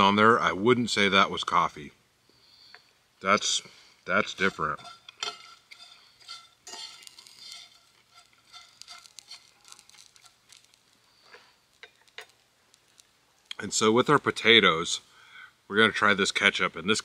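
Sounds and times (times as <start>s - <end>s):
fork and knife scraping: 4.2s - 13.0s.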